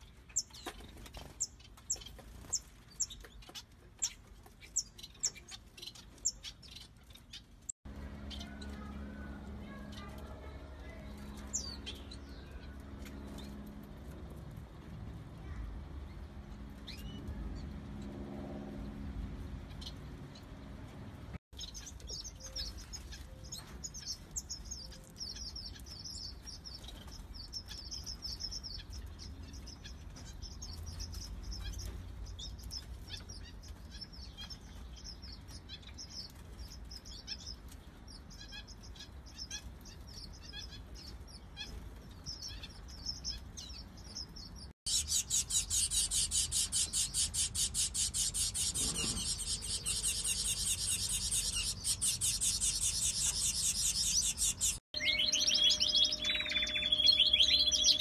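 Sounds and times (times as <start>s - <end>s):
high-pitched pulsing chatter: 7.9s - 13.6s, 44.9s - 58.0s
finches chirping: 41.6s - 58.0s.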